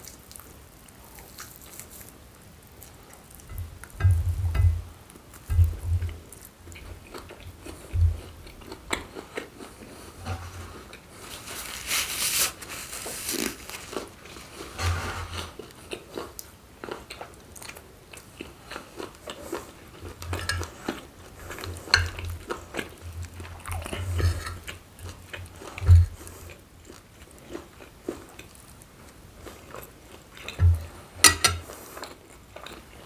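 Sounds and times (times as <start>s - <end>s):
close chewing and crunching: 0.0s - 33.0s
spoon scooping food on plate: 3.5s - 4.8s.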